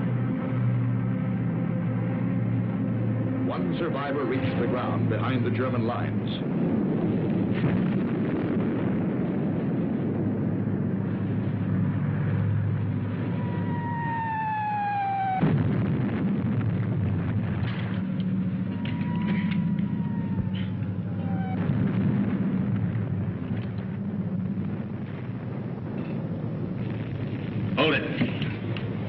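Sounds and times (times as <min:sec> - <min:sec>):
low rumble: 0:00.0 - 0:29.0
explosions: 0:04.4 - 0:29.0
sharp cracks: 0:12.2 - 0:29.0
artillery shells whistling down: 0:13.3 - 0:29.0.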